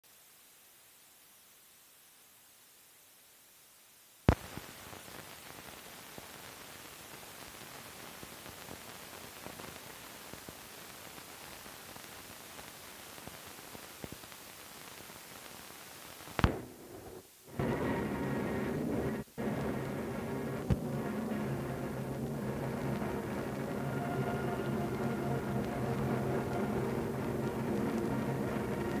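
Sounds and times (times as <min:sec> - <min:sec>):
film hiss: 0:00.0 - 0:29.0
crackles and small clicks: 0:04.2 - 0:18.0
loud film pop: 0:16.4 - 0:16.8.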